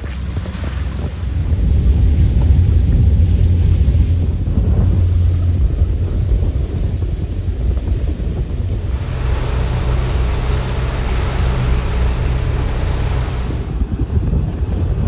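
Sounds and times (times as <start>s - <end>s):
wind on microphone: 0.0s - 15.0s
diesel engine humming: 8.6s - 14.0s
water rushing past: 8.7s - 14.0s.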